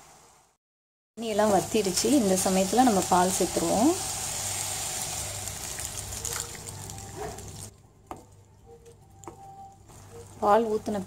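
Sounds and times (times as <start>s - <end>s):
pan sizzling: 1.2s - 7.7s.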